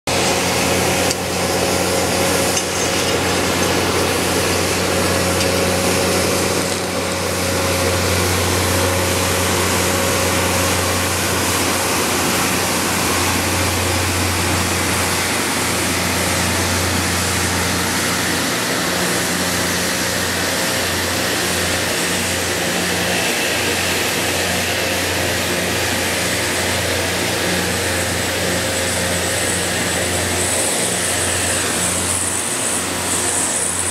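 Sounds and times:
low engine hum: 0.1 - 33.9
rail grinding train grinding: 0.1 - 33.9.

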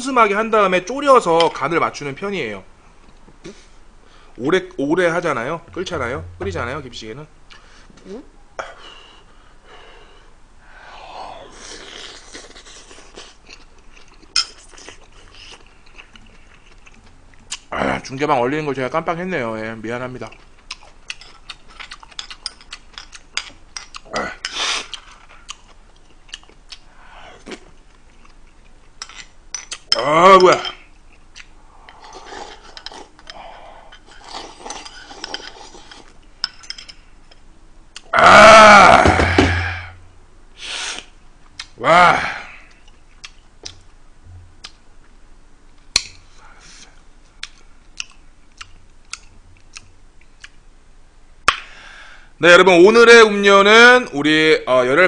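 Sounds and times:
wet chewing and mouth clicks: 20.2 - 29.9, 42.7 - 44.0, 47.4 - 50.6
slurping broth: 31.9 - 33.2.

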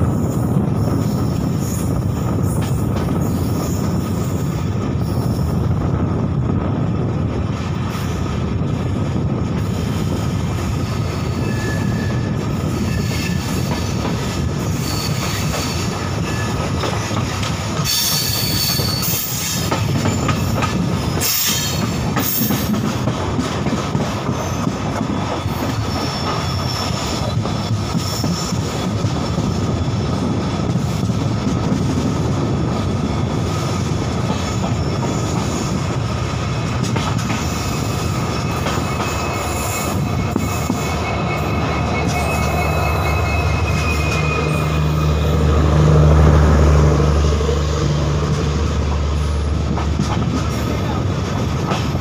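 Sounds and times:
train wheels rumbling on rails: 0.0 - 52.0
high wheel screeching: 37.4 - 45.6.

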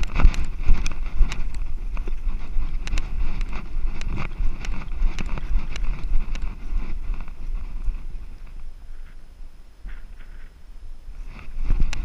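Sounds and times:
camera jostling clicks and knocks: 0.0 - 8.6
wind rumbling on microphone: 0.0 - 12.0.

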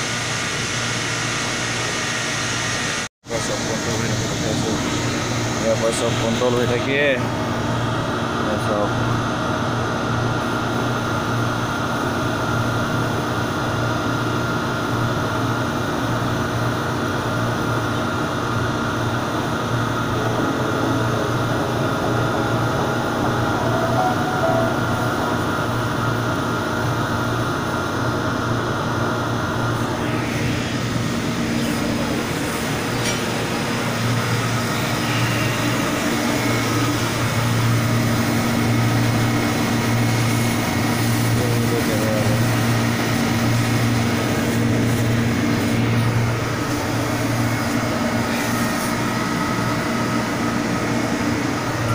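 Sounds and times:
drilling machinery drone: 15.8 - 49.7.

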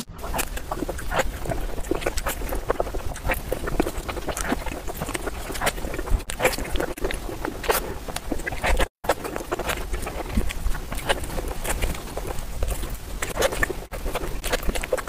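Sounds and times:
wet chewing and lip-smacking: 0.0 - 15.0.

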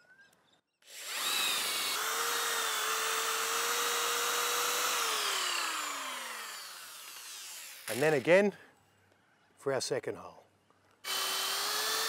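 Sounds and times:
impact drill boring into wood: 0.8 - 8.2, 11.0 - 12.0.

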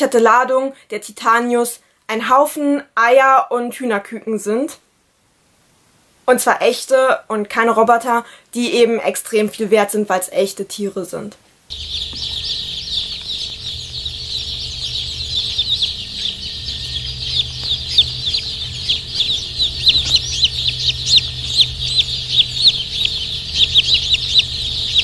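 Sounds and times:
baby chicks peeping: 11.7 - 25.0
low steady hum: 11.7 - 25.0.

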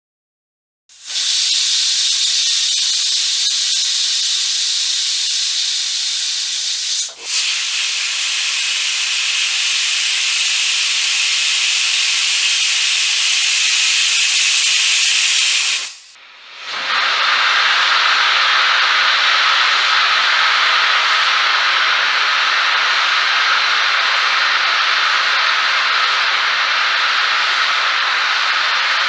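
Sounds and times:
pressure cooker whistle hissing: 0.9 - 16.2.

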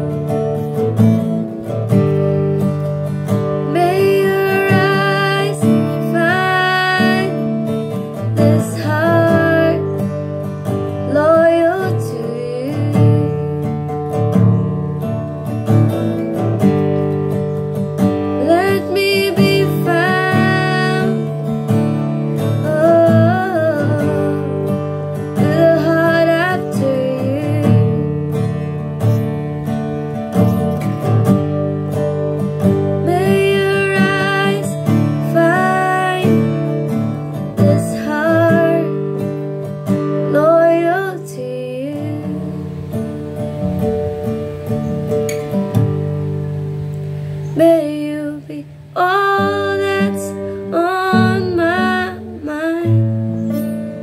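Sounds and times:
acoustic guitar strumming: 0.0 - 54.0
person singing: 3.4 - 13.8, 18.3 - 21.6, 22.4 - 28.6, 32.7 - 39.3, 40.0 - 42.9, 47.6 - 53.5.

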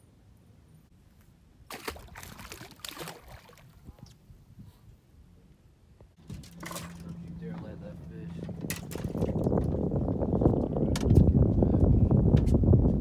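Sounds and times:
fish splashing into water: 1.7 - 3.7, 6.4 - 7.1
water sloshing and dripping: 1.7 - 3.8, 6.2 - 7.5, 8.5 - 9.8
steady low hum: 6.2 - 12.4.

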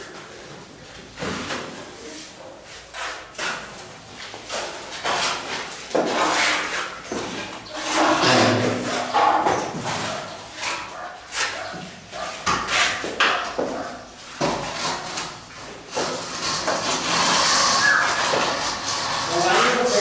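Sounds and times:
trowel scraping wet mortar: 4.4 - 13.5, 14.5 - 20.0.

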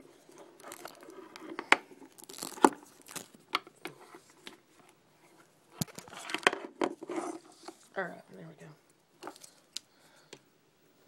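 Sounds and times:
crinkling and rustling: 0.0 - 8.0.

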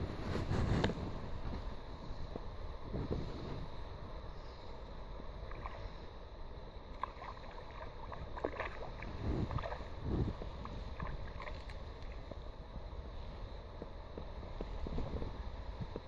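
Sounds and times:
wind rumble on microphone: 0.0 - 16.0
fish splashing in water: 6.9 - 12.3.

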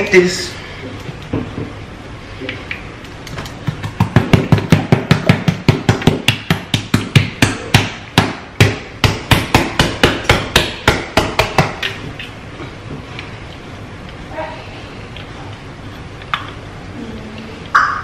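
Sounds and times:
hands slapping raw meat: 3.2 - 12.0.

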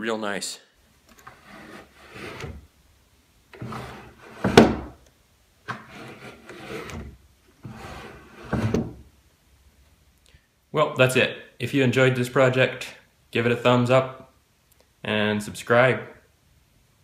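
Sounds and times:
wood rubbing on wood: 1.1 - 2.7, 3.6 - 5.0, 5.7 - 9.0.

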